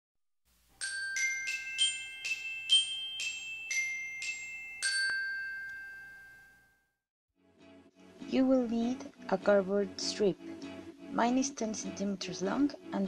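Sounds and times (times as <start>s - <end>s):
chiming jingle: 0.8s - 6.9s.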